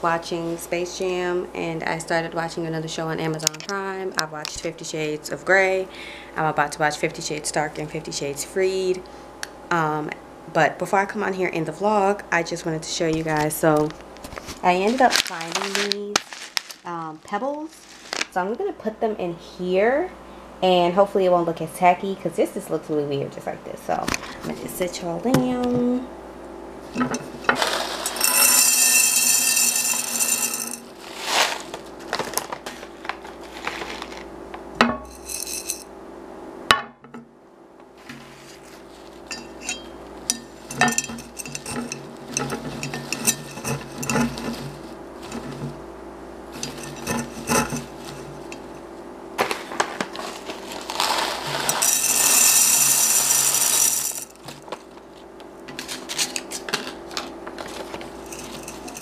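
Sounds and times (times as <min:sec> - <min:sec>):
single pebbles clinking: 0:14.9 - 0:16.9, 0:27.6 - 0:32.8, 0:35.0 - 0:35.8, 0:50.5 - 0:54.6, 0:57.7 - 0:59.0
pebbles pouring into glass vase: 0:27.6 - 0:31.7, 0:35.1 - 0:35.8, 0:50.5 - 0:54.4.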